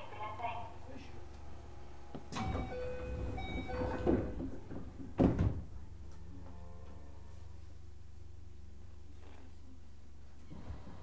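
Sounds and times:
low hum of standing train: 0.0s - 11.0s
train doors sliding: 1.6s - 7.2s
doors closing thump: 2.1s - 5.9s.

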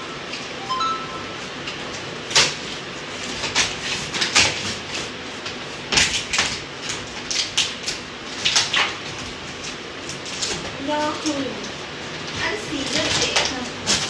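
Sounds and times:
packing tape ripping: 1.6s - 11.7s.

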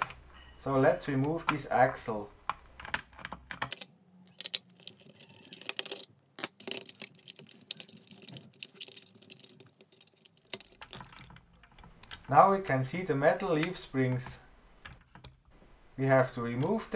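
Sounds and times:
plastic parts clicking and tapping: 2.4s - 12.4s, 13.5s - 15.5s.

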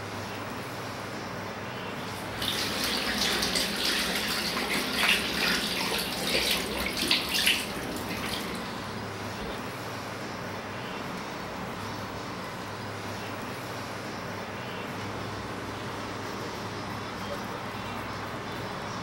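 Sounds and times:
tap water running into sink: 2.2s - 8.9s.

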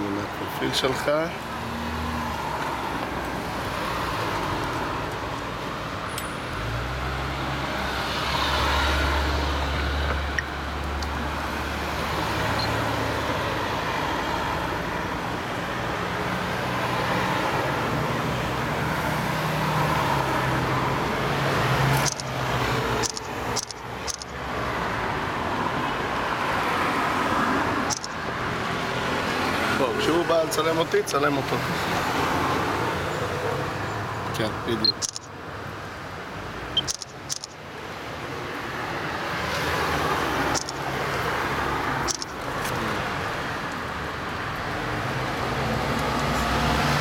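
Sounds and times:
cars driving past: 0.0s - 47.0s.

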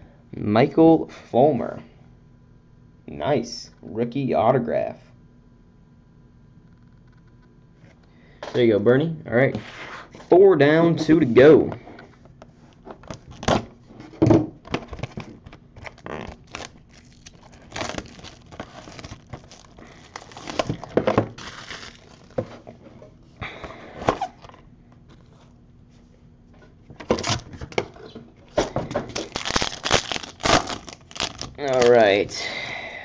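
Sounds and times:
plastic wrap crinkling and tearing: 13.0s - 13.7s, 14.7s - 22.7s, 27.1s - 27.8s, 29.1s - 32.3s.

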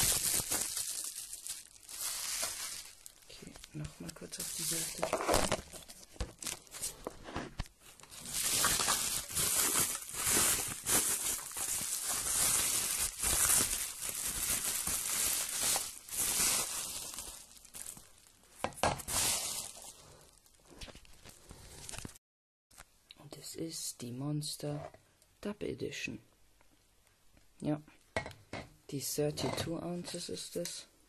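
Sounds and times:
bubble wrap crinkling: 0.0s - 22.2s.

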